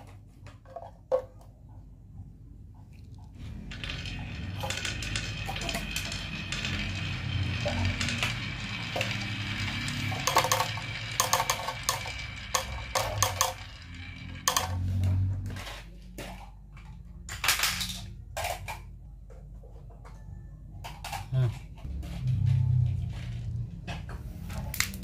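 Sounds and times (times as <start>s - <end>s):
marbles clicking and clattering: 3.4s - 18.9s
marbles rolling on wood: 3.4s - 18.9s, 20.9s - 25.0s.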